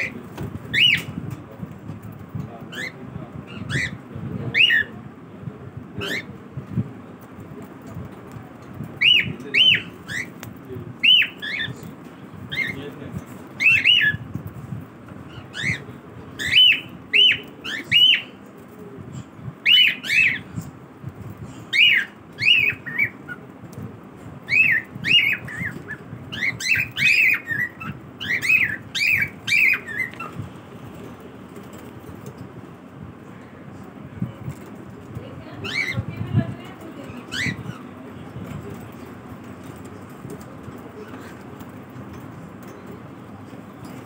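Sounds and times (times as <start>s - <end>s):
cockatiels chirping: 0.0s - 1.3s, 2.7s - 4.9s, 6.0s - 6.3s, 9.0s - 11.9s, 12.5s - 13.0s, 13.6s - 14.2s, 15.3s - 18.4s, 19.6s - 20.6s, 21.7s - 23.4s, 24.5s - 30.4s, 35.6s - 36.2s, 37.0s - 38.8s.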